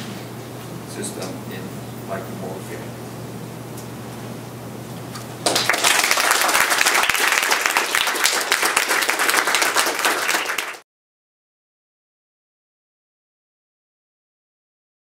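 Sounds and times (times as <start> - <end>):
audience applauding: 5.4 - 10.8.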